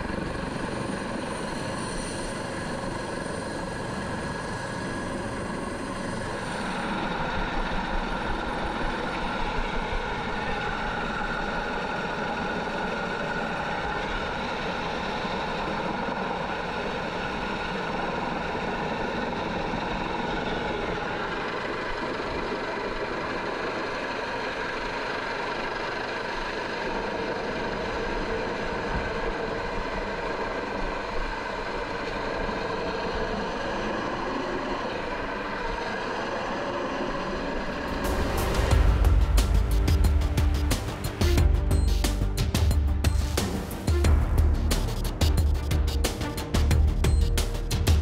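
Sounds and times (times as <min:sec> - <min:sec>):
helicopter turbine whine: 0:00.0 - 0:48.0
rotor and wind noise: 0:00.0 - 0:48.0
music: 0:37.9 - 0:48.0.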